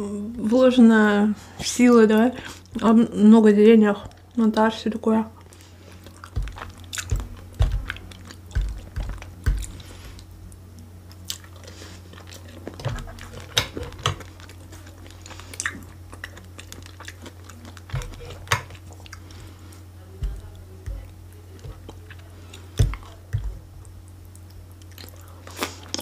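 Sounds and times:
steady low hum: 0.0 - 26.0
wet mouth chewing sounds: 5.3 - 26.0
low thumps: 6.3 - 9.8, 20.2 - 21.2.

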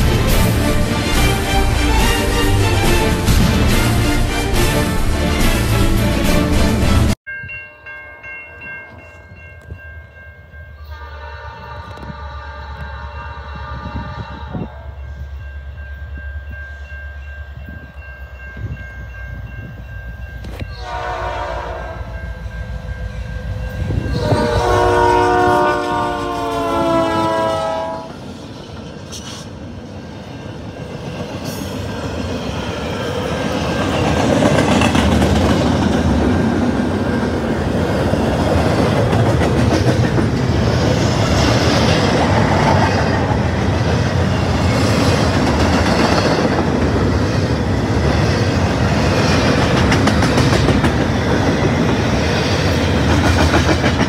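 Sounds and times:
crossing signal bell ringing: 7.3 - 11.9, 13.0 - 26.9
train air horn blasts: 10.8 - 15.0, 20.5 - 22.3, 23.9 - 28.2.

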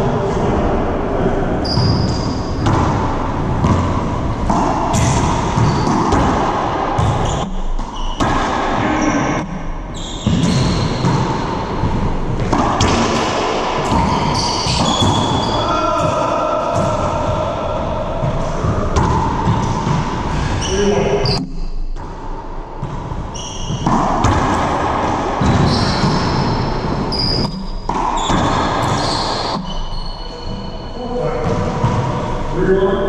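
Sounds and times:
shoes squeaking on floor: 1.6 - 2.6, 5.0 - 6.1, 7.0 - 8.3, 8.9 - 11.5, 13.9 - 15.8, 23.2 - 24.0, 25.4 - 31.0
racquetball smacking off racquets: 2.3 - 8.8, 10.3 - 17.1, 18.2 - 20.3, 21.9 - 29.7.

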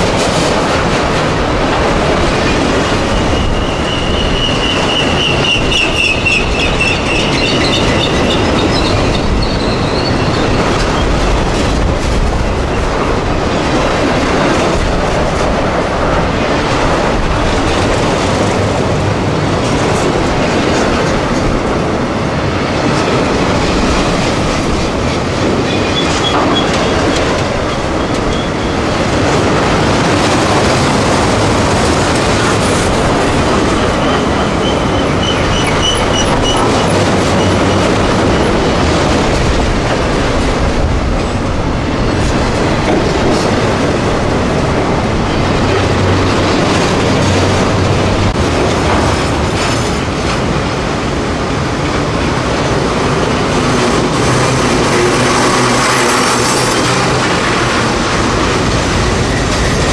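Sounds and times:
freight train wheels clacking: 0.0 - 59.9
wheels squealing against rail: 2.4 - 11.8, 25.6 - 29.0, 33.1 - 39.0.

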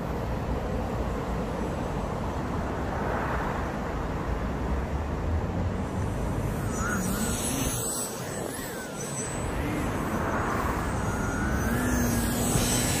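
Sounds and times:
traffic rumble: 0.0 - 13.0
faint wavering whistle-like tones: 5.8 - 13.0.

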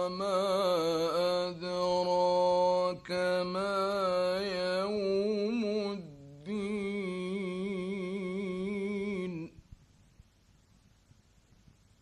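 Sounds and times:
man chanting melodically: 0.0 - 9.6.

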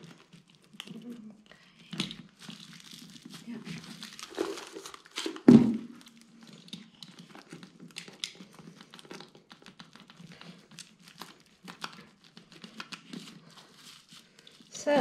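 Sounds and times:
plastic film crinkling: 0.0 - 15.0.

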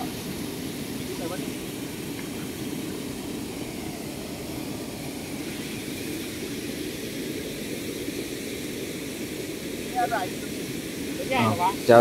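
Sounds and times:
floodwater rushing: 0.0 - 12.0.

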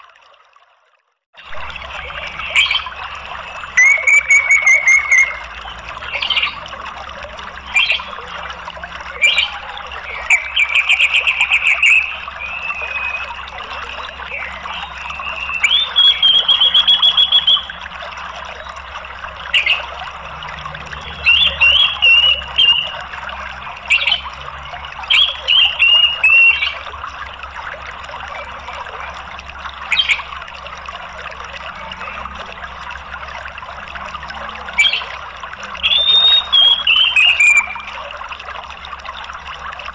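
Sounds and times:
running water: 0.0 - 39.9
thrush calling: 1.4 - 26.9, 34.5 - 38.2.

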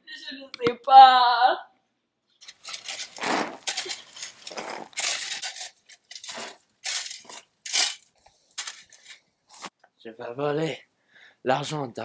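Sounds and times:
shovel scraping into gravelly soil: 2.5 - 7.9.

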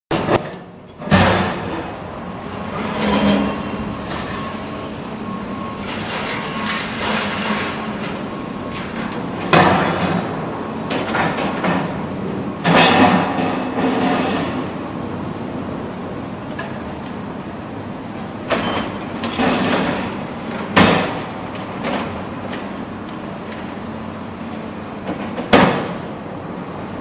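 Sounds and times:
excavator engine running: 0.1 - 14.0.

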